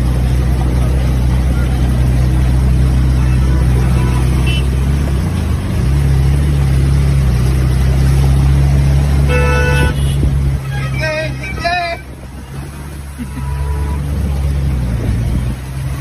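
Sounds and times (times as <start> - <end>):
auto-rickshaw engine droning: 0.0 - 16.0
vehicle horn: 3.9 - 4.8, 9.2 - 12.2, 13.2 - 14.1.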